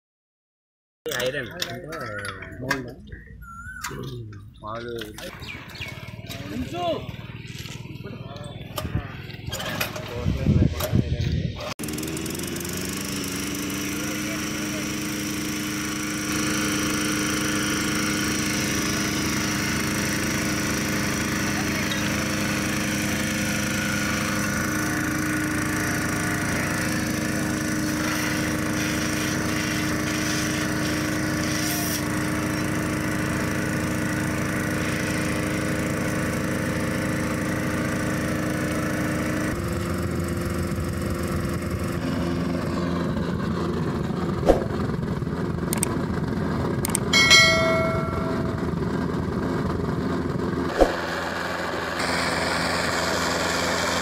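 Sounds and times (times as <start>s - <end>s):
small engine running: 4.8s - 54.0s
sharp metallic knocks: 47.1s - 48.7s
short ringing clang: 47.1s - 48.7s.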